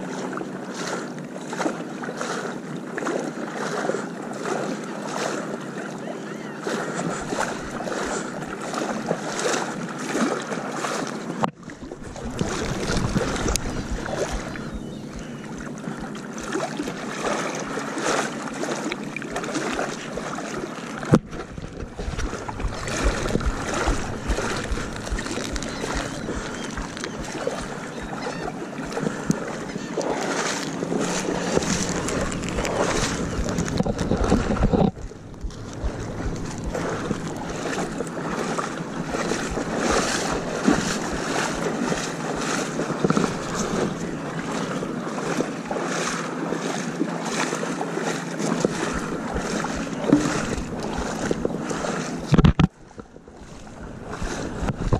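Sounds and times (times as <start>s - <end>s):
water noise from boat: 0.0s - 54.9s
wind rushing over microphone: 11.9s - 16.1s, 21.2s - 29.6s, 30.7s - 44.7s, 53.6s - 54.9s.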